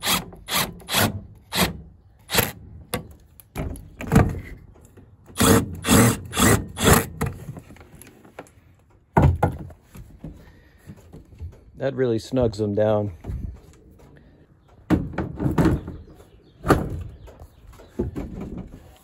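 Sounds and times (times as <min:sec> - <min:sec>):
impact driver driving screws: 0:00.0 - 0:02.6, 0:05.3 - 0:07.3.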